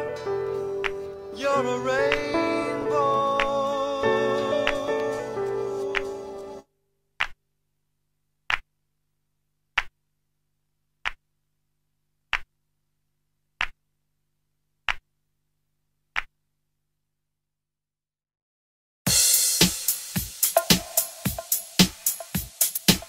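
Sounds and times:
music: 0.0s - 6.7s, 19.1s - 23.0s.

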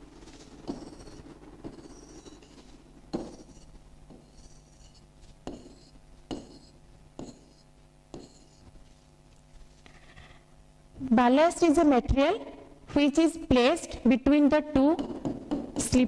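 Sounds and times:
faint high scratch: 3.3s - 5.9s.

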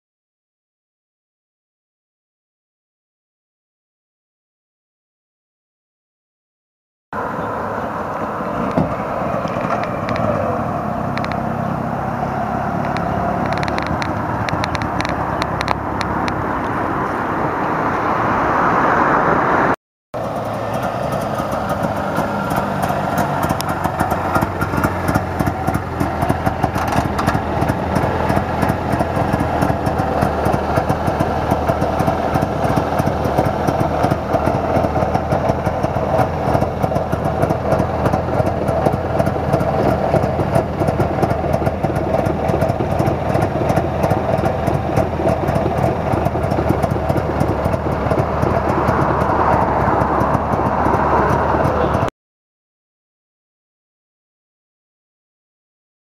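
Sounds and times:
two-stroke engine idling: 9.4s - 16.2s, 20.2s - 52.1s.

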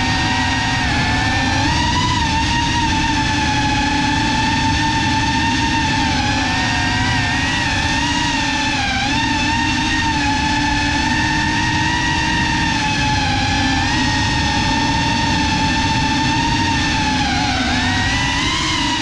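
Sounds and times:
drone motors whining: 0.0s - 19.0s
prop wash rumble: 0.0s - 19.0s.

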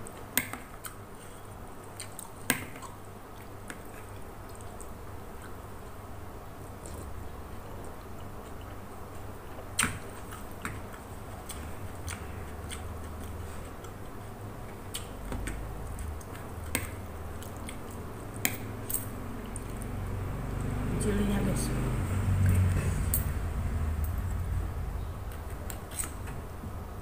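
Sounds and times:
chewing noodle soup: 1.8s - 6.0s, 7.8s - 18.7s, 19.4s - 20.8s.

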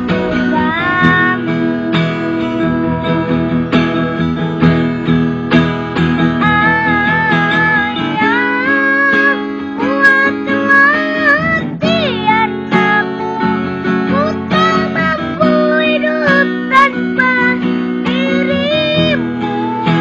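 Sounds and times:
young boy singing: 0.0s - 3.7s, 6.3s - 20.0s
acoustic guitar strumming chords: 0.0s - 20.0s.

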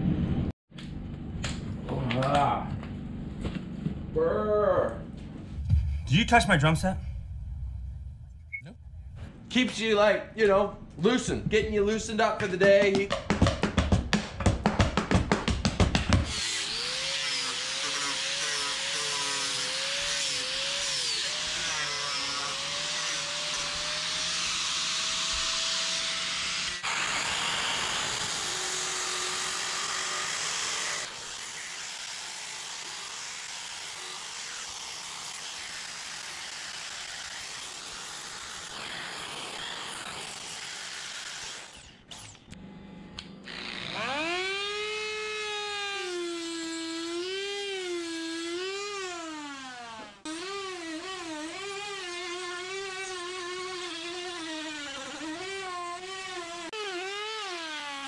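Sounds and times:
power tool grinding wood: 16.2s - 42.6s, 43.5s - 58.0s.

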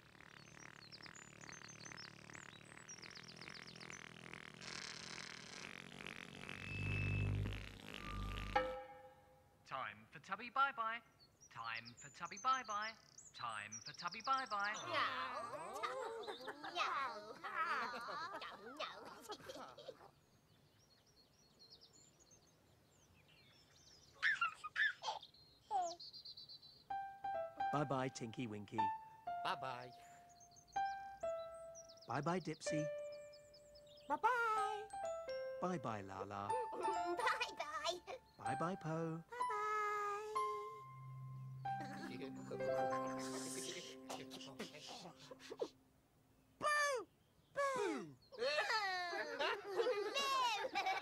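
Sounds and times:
bird chirping: 0.0s - 17.3s, 20.1s - 48.4s
baby laughing: 14.9s - 20.1s, 24.2s - 26.0s, 36.5s - 38.2s, 41.8s - 45.8s, 48.4s - 51.0s
soft music bed: 26.9s - 45.9s.

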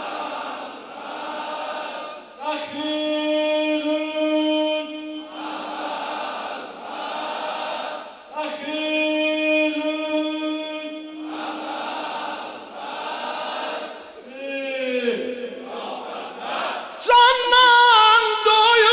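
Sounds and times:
men chanting a lament: 0.0s - 18.9s
man singing a long note: 2.4s - 5.4s, 8.4s - 11.2s.

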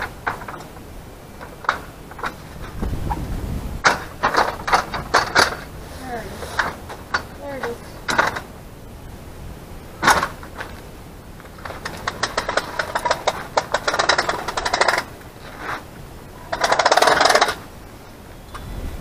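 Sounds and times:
rapid mechanical clicking: 0.0s - 2.9s, 3.8s - 5.7s, 10.0s - 17.7s.

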